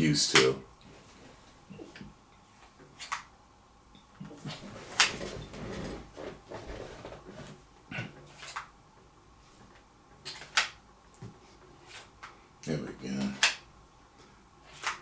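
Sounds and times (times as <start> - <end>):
rustling: 4.2 - 7.6.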